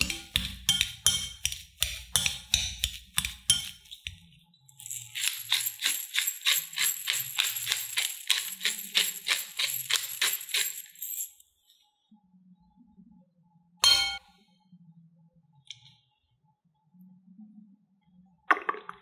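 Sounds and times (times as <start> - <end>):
potato masher on glass bowl: 0.0 - 4.2, 4.9 - 10.6
pepper grinder rasping crunch: 4.7 - 11.2.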